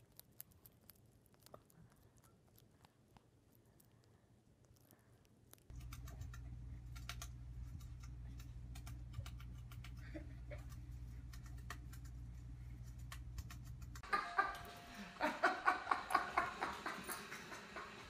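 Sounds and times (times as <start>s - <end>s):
hamster nibbling food: 0.0s - 14.0s
steady low hum: 0.0s - 18.0s.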